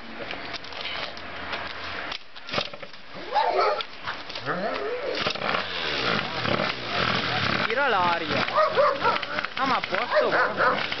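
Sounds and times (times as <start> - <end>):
dog barking and whining: 3.2 - 3.9, 8.4 - 9.4, 10.0 - 11.0
kick-starter clunks: 5.2 - 11.0.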